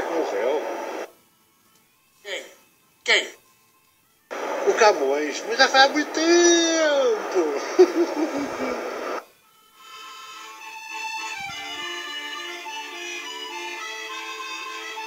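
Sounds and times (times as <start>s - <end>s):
instrumental music with held notes: 1.1s - 4.4s, 9.3s - 15.0s
person speaking: 4.6s - 9.0s.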